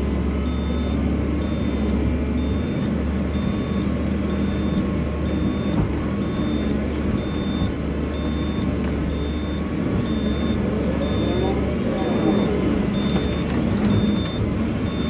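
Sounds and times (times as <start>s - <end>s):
excavator diesel engine running: 0.0s - 15.0s
warning alarm beeping: 0.4s - 15.0s.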